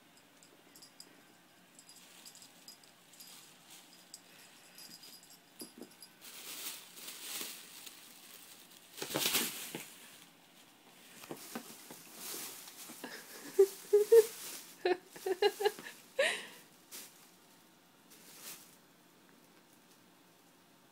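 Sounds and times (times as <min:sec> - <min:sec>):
plastic bag rustling and crinkling: 0:01.8 - 0:04.2, 0:04.8 - 0:16.2, 0:16.8 - 0:18.8.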